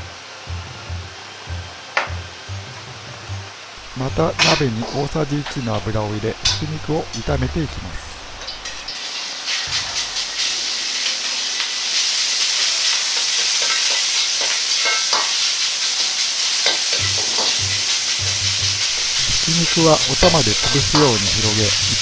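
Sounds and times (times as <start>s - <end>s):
meat sizzling in a wok: 8.1s - 22.0s.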